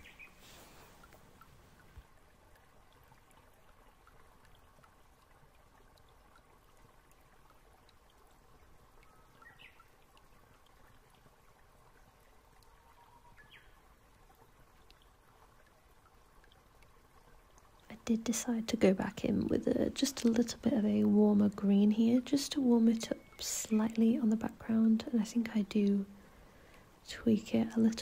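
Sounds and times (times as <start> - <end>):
faint background hiss: 0.0 - 28.0.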